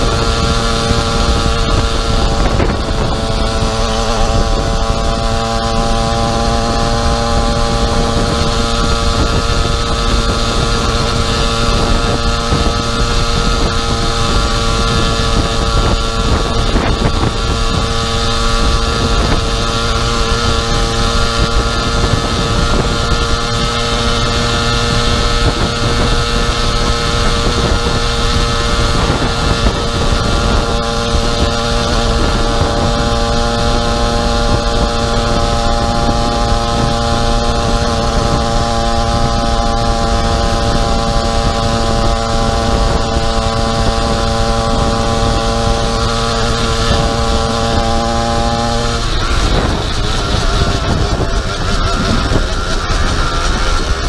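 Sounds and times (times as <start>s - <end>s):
two-stroke engine running: 0.0s - 54.0s
wind buffeting microphone: 0.0s - 54.0s.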